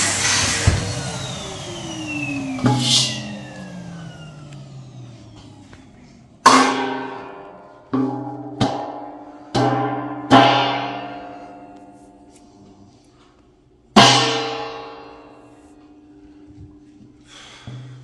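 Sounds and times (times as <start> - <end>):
metal tray struck ringing: 6.4 - 11.8, 14.0 - 15.5.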